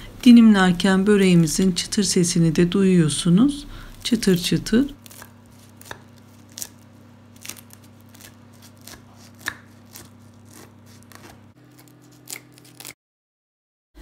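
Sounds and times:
knife crunching through crisp pastry: 0:05.0 - 0:13.0.

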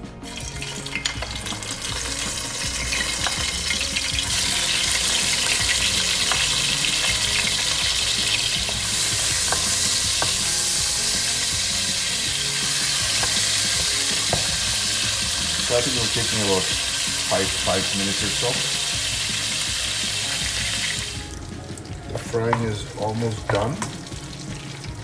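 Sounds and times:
fish sizzling in hot oil: 0:00.3 - 0:25.0
wooden spoon knocks: 0:14.3 - 0:14.6.

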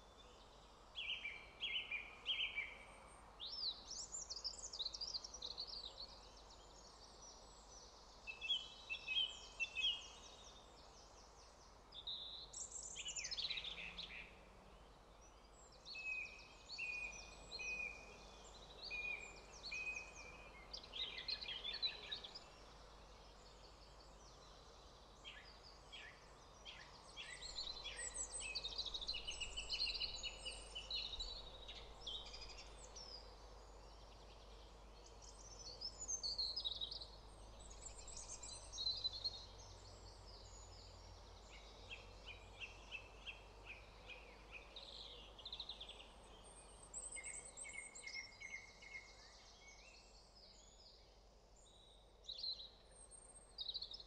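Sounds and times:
wild birds singing: 0:00.0 - 0:54.0.

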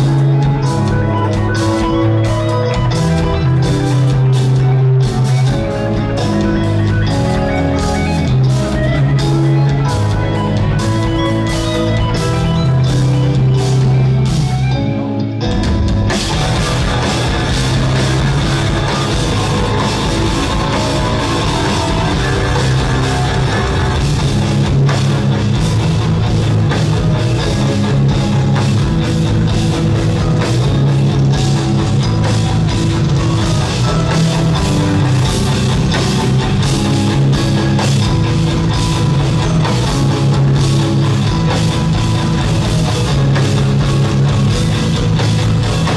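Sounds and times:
electric guitars: 0:00.0 - 0:45.9
dense rhythmic drumming: 0:15.7 - 0:45.9.

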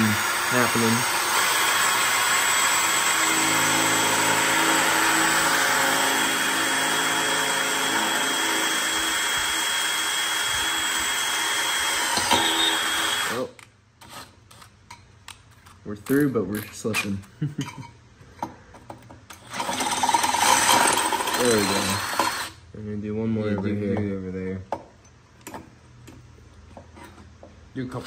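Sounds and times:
cordless drill boring through steel: 0:00.0 - 0:13.5, 0:19.4 - 0:22.6.

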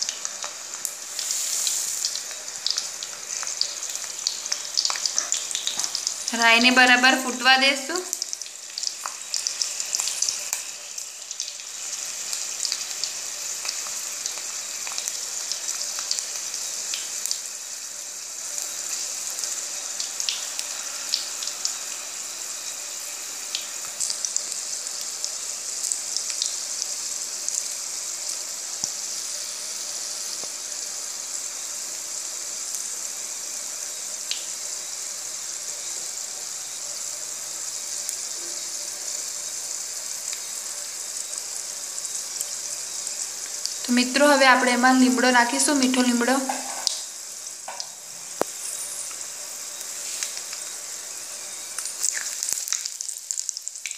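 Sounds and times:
oil sizzling: 0:00.0 - 0:53.9
mustard seeds popping: 0:51.8 - 0:53.6.

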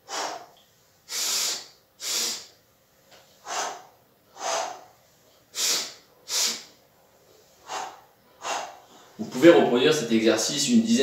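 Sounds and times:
man breathing forcefully: 0:00.0 - 0:02.6, 0:03.4 - 0:06.8, 0:07.4 - 0:09.2.

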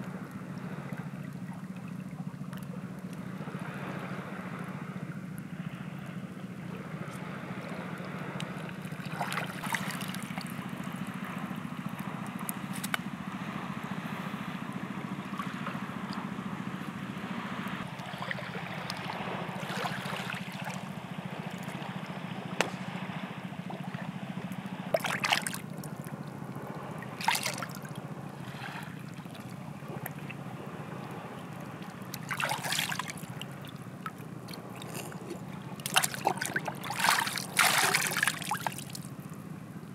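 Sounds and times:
steady water wash: 0:00.0 - 0:39.9
short water splashes: 0:06.7 - 0:13.1, 0:17.8 - 0:39.5.

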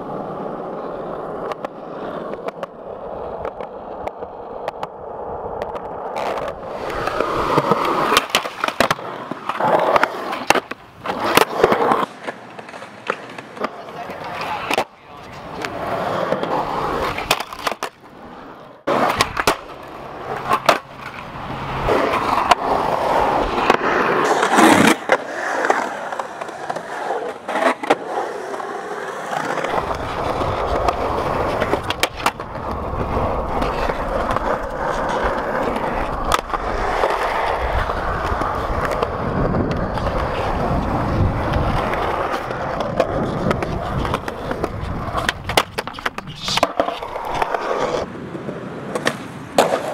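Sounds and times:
skateboard clacking on concrete: 0:00.0 - 0:49.9
skateboard wheels rolling on concrete: 0:00.0 - 0:49.9.

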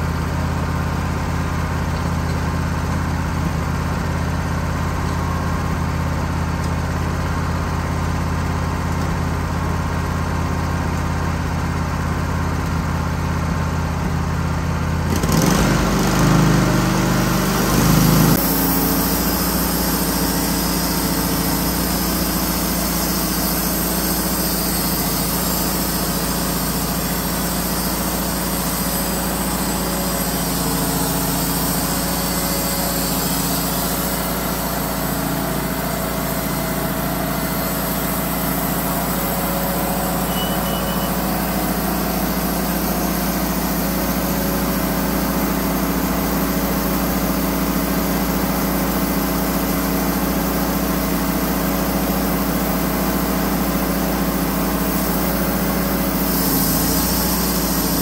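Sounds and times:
sawmill gas engine running: 0:00.0 - 0:58.0
band saw cutting log: 0:15.0 - 0:58.0.

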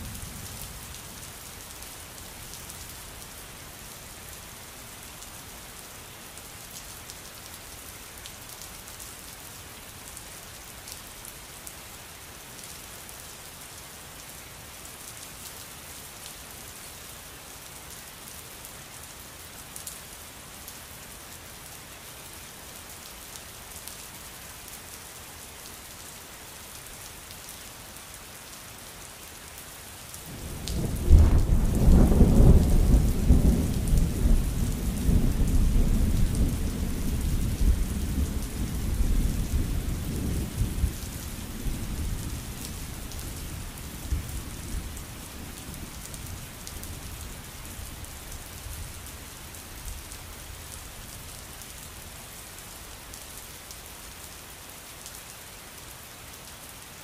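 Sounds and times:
steady rain falling: 0:00.0 - 0:57.0
thunder clap rumbling: 0:30.7 - 0:36.7.

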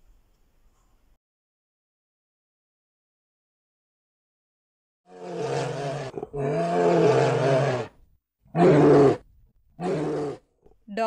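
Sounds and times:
bear growling: 0:05.1 - 0:09.2, 0:09.8 - 0:10.4.

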